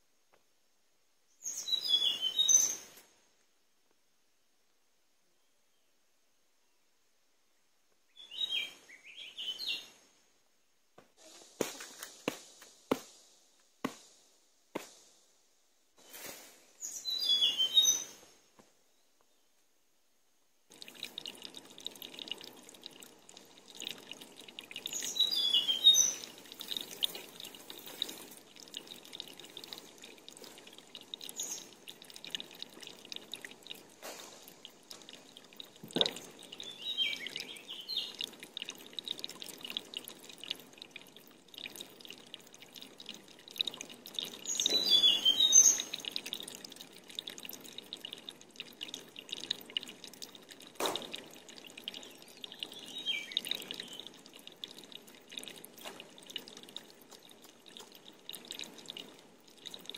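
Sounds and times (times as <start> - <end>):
water dripping: 1.4 - 3.1, 7.9 - 10.0, 16.0 - 19.4, 20.6 - 59.9
water pouring and splashing: 11.2 - 15.3, 16.0 - 18.5, 20.7 - 59.9.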